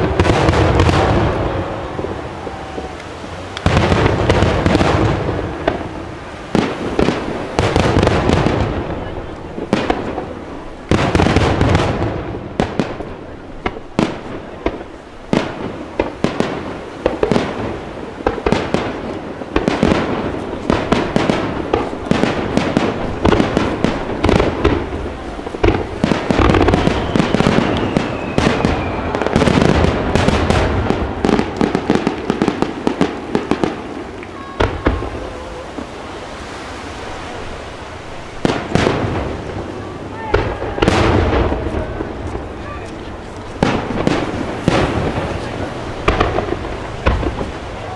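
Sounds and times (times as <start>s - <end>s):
fireworks bangs and crackling: 0.0s - 47.9s
falling firework whistle: 25.6s - 32.1s.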